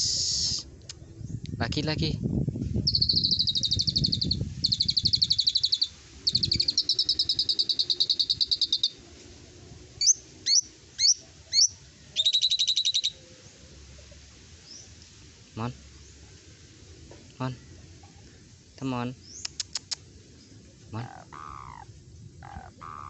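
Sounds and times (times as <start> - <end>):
bird rattling trills: 2.8 - 9.0, 21.0 - 23.0
bird rising whistles: 2.9 - 9.0, 11.6 - 13.2.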